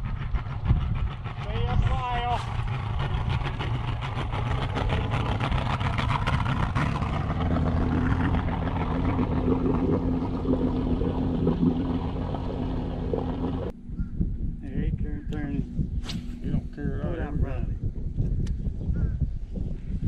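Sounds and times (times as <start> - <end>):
outboard motor running: 0.0 - 14.1.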